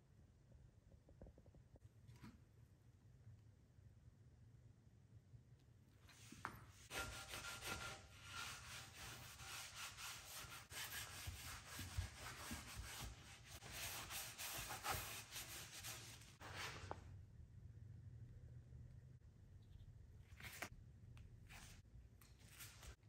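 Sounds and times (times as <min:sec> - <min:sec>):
cloth rag wiping metal: 0:06.2 - 0:16.7.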